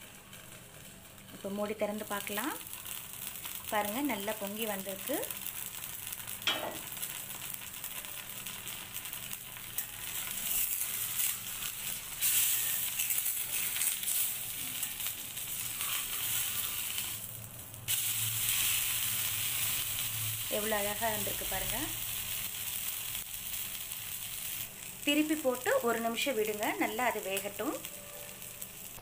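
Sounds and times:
batter sizzling on a griddle: 0.0s - 29.0s
steel spatula scraping: 9.8s - 17.2s.

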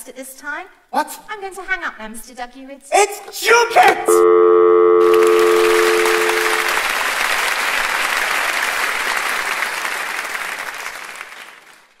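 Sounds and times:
audience applauding: 5.0s - 12.0s.

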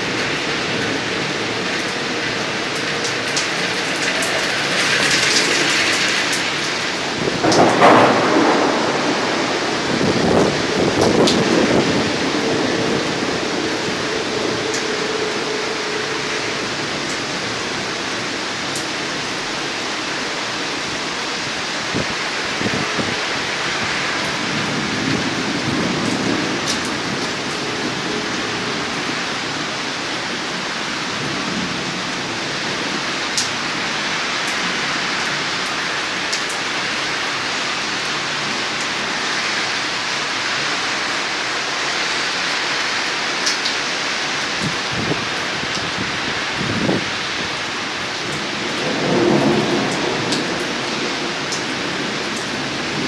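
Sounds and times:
heavy rain hissing: 0.0s - 53.0s
raindrops ticking close by: 0.0s - 53.0s.

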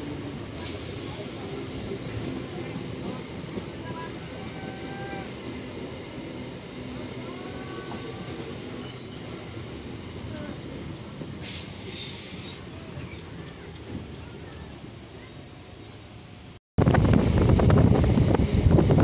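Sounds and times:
train wheels rumbling on track: 0.0s - 19.0s
high-pitched metallic squeal: 7.8s - 16.6s.

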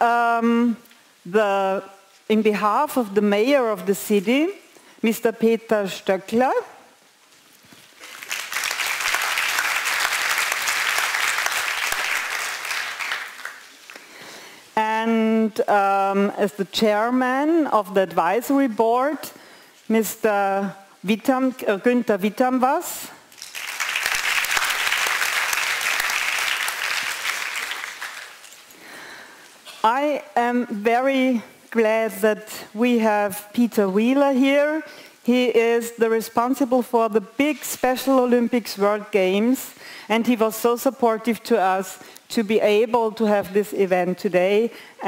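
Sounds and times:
audience applauding: 8.0s - 14.1s, 23.4s - 28.7s.

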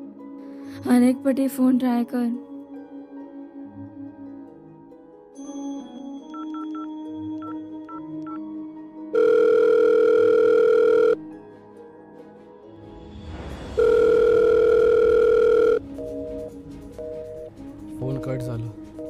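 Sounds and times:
soft background music: 0.0s - 19.0s
phone keypad beeps: 6.3s - 8.4s, 9.2s - 11.2s, 13.8s - 17.5s
steady telephone tones: 9.2s - 11.2s, 13.8s - 17.5s.

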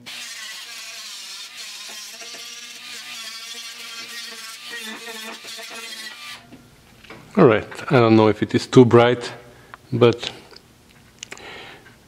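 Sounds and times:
power grinder grinding metal: 0.0s - 6.6s.

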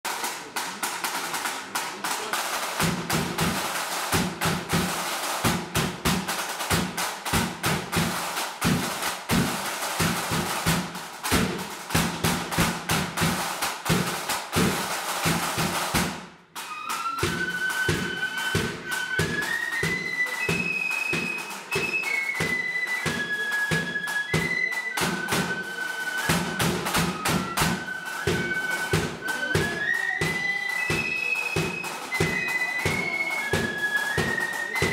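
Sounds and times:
side drums rolling: 0.1s - 34.9s
flute melody: 16.6s - 34.9s.

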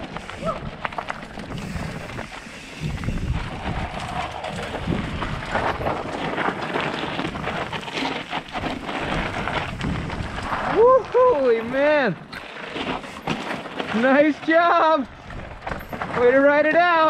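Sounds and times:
wind buffeting microphone: 0.0s - 11.8s
mountain bike rattling: 0.0s - 17.0s
tyre roar: 0.2s - 11.4s.

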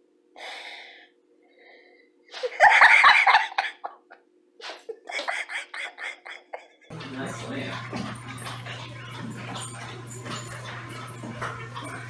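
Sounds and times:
person laughing: 2.4s - 6.9s.

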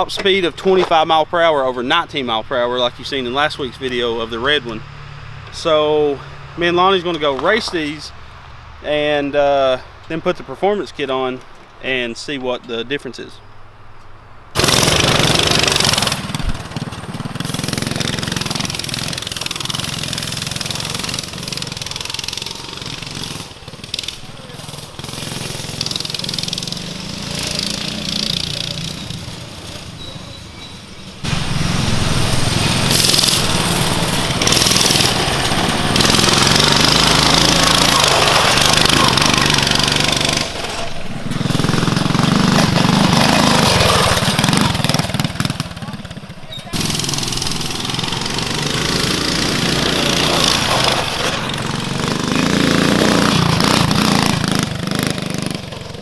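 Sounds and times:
mini bike engines racing: 14.6s - 56.0s.

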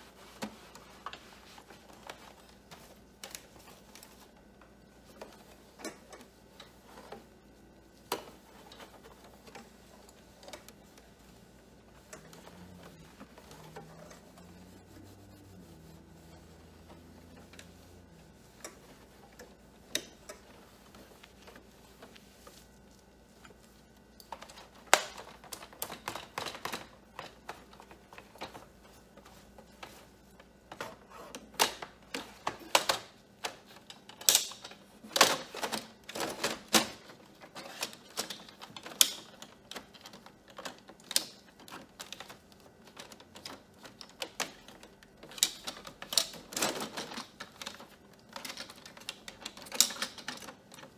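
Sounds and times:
faint low hum: 0.0s - 33.7s.

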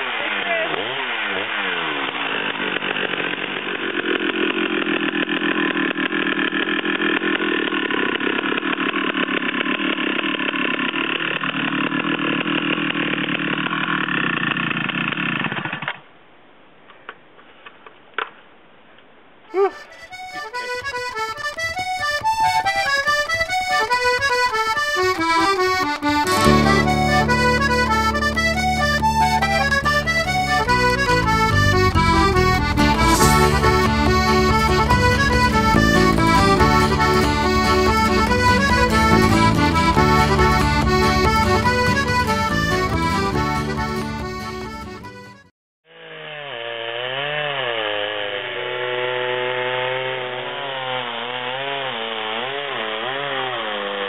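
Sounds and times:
chainsaw running: 0.0s - 16.0s, 19.5s - 54.0s
accordion music: 19.5s - 45.5s
steady bass line: 22.0s - 45.3s.

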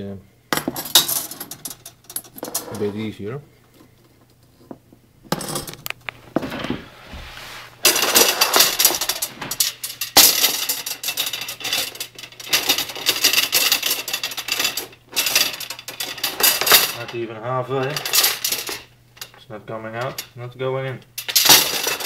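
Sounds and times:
copper tubing clinking and rattling: 7.8s - 17.2s, 17.8s - 19.4s, 21.2s - 22.0s.

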